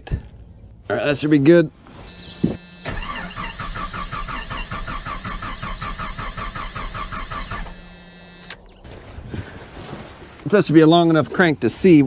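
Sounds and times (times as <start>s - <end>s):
engine cranking on starter motor: 2.8s - 8.6s.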